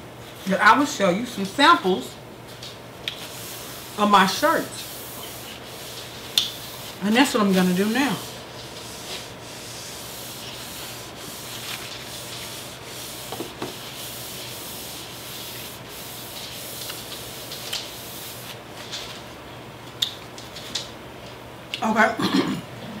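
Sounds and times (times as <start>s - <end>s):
paper napkin rubbing on desktop: 3.2s - 18.6s.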